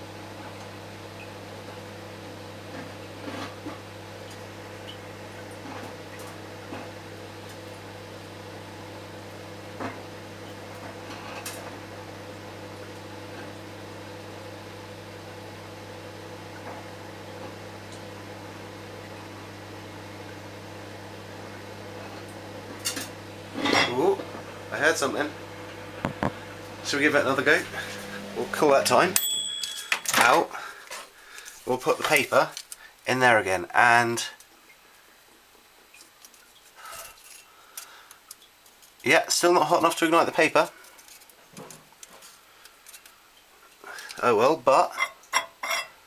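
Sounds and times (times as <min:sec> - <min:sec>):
microwave oven humming: 0:00.0 - 0:34.3.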